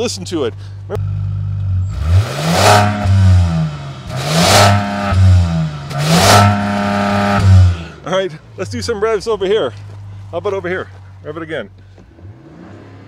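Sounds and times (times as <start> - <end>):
car engine idling and revving: 0.0 - 13.0.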